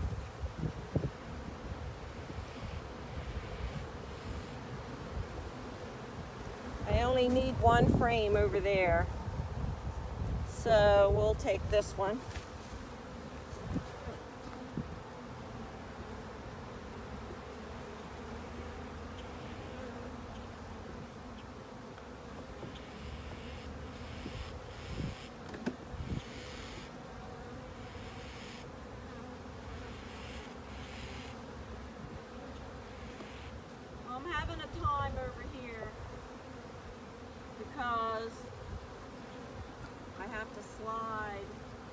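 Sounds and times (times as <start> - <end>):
bees buzzing: 0.0 - 41.9.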